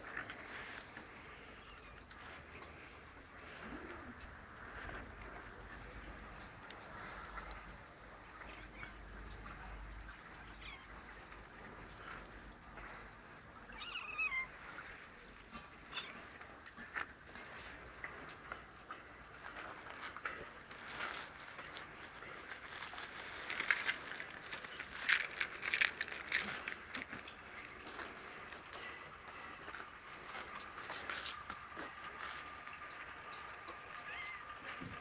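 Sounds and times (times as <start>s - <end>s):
footsteps crunching on icy paving: 20.7s - 27.3s.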